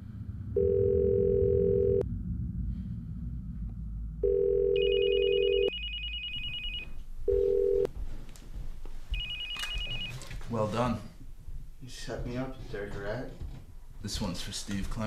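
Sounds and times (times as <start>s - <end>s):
low phone tone: 0.5s - 2.0s, 4.2s - 7.9s, 9.1s - 10.3s
electronic phone ringer trilling: 4.2s - 7.9s.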